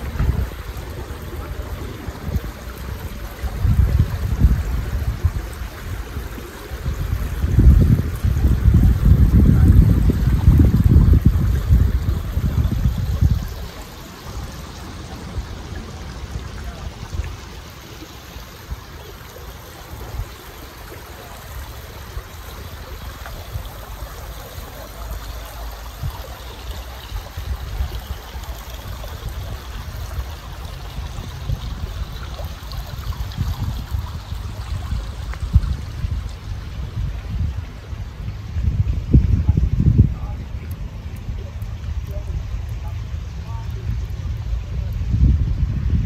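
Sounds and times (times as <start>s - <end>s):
rushing outdoor noise: 0.0s - 46.0s.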